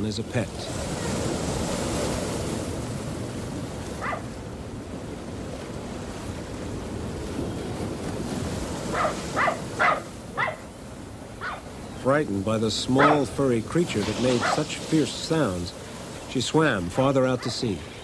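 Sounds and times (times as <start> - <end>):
surf washing on beach: 0.0 - 18.0
small dog barking: 4.0 - 4.3, 8.9 - 10.7, 11.4 - 11.7, 13.0 - 13.2, 17.0 - 17.6.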